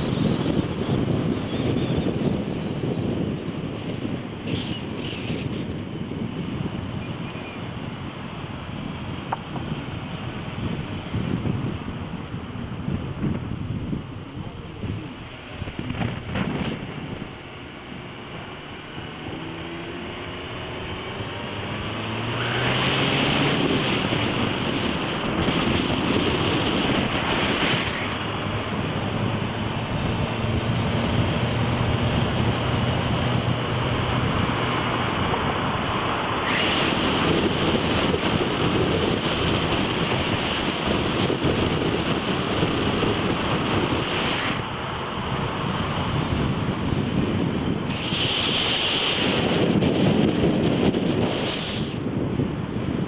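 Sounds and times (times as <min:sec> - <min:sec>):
wind rushing on microphone: 0:00.0 - 0:53.0.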